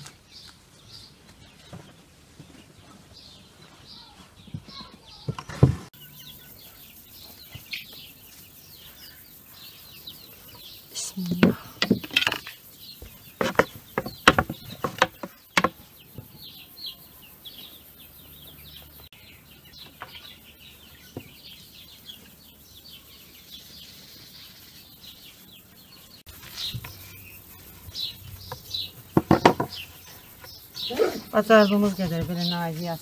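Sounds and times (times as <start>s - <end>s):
birds chirping: 0.0s - 33.0s
sharp knocks: 13.4s - 15.8s, 29.2s - 29.8s.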